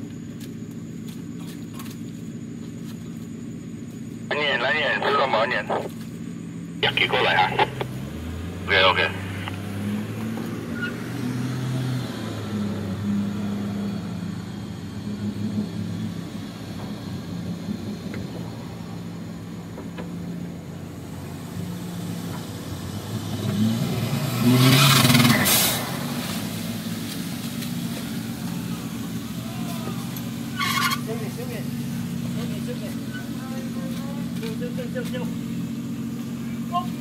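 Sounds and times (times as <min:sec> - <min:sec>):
engine running: 0:00.0 - 0:37.0
engine revving loudly: 0:06.8 - 0:18.6, 0:21.6 - 0:26.8.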